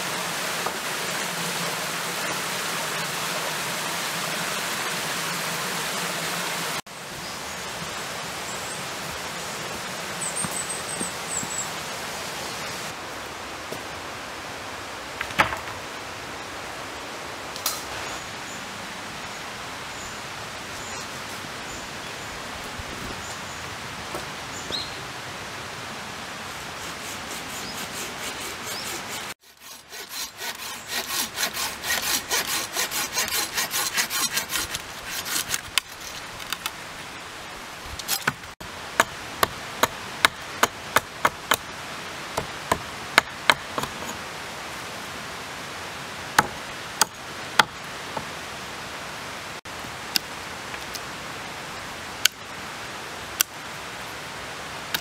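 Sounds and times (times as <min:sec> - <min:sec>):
outdoor hiss: 0:00.0 - 0:29.4, 0:30.4 - 0:55.0
saw cutting through sapling: 0:26.8 - 0:36.6, 0:42.4 - 0:44.2.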